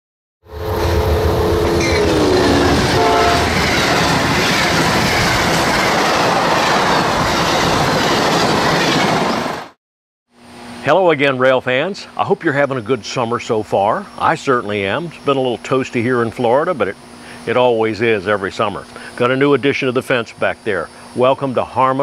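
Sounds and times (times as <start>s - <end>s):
train horn: 0.5s - 3.7s
train cars rumbling and clattering: 0.6s - 9.7s.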